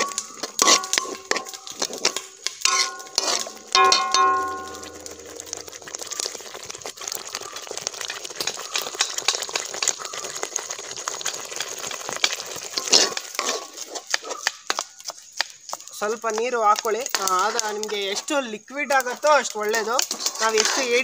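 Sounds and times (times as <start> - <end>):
steel spoon scraping a pan: 0.0 - 9.2, 12.8 - 14.5, 20.1 - 21.0
gravy sizzling in a metal pan: 0.0 - 21.0
metallic ring: 2.7 - 6.2.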